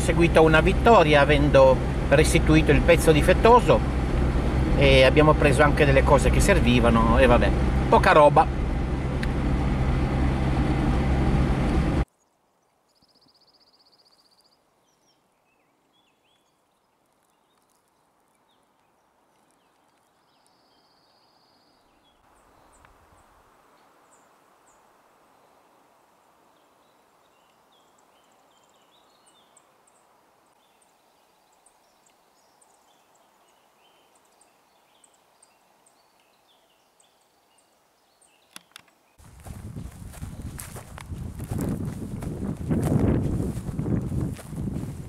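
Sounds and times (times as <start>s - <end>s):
faint hiss: 22.3s - 38.5s.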